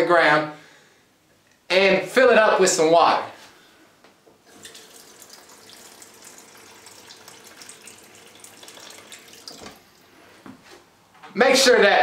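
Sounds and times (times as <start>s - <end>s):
faucet running water into bowl: 4.5s - 10.0s.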